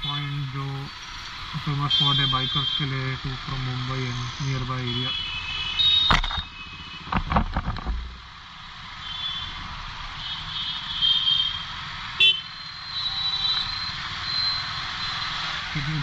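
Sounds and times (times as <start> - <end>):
motorcycle engines in traffic: 0.0 - 16.0
knocks: 7.1 - 8.1.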